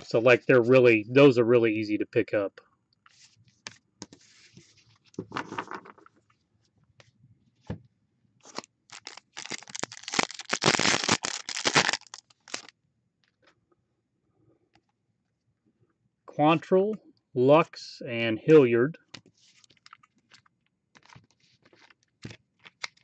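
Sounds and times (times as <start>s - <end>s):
foil wrapper tearing and crinkling: 8.5s - 12.7s.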